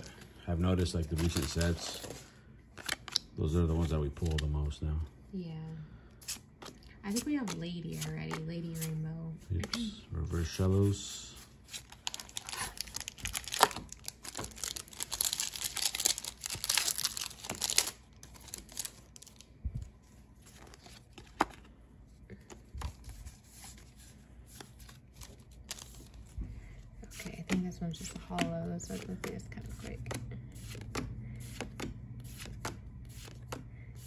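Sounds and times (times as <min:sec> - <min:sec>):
foil wrapper tearing and crinkling: 0:11.8 - 0:19.4.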